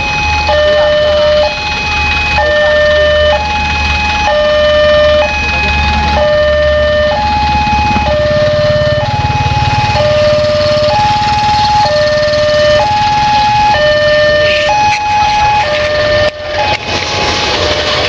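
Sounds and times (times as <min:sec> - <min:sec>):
level crossing two-tone alarm: 0:00.0 - 0:18.0.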